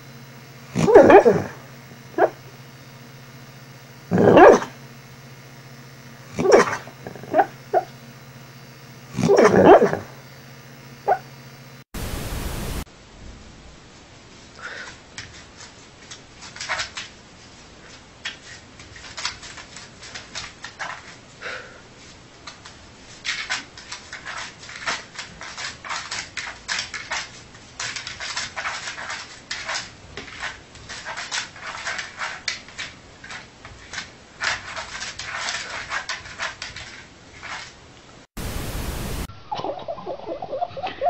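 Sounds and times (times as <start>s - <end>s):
dog claws scratching wall: 23.2s - 37.8s.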